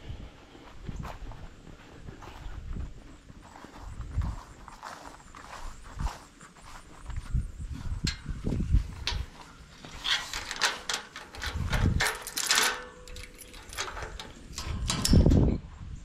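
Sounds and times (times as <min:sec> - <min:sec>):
metal latch clicks and rattles: 0:08.0 - 0:15.6.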